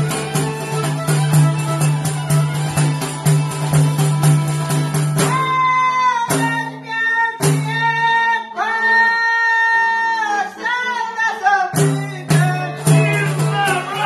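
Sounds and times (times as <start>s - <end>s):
frame drum: 0.0s - 5.7s, 11.8s - 14.0s
violin: 0.0s - 6.2s
accordion: 0.0s - 14.0s
lutes: 0.0s - 14.0s
people singing: 5.3s - 14.0s.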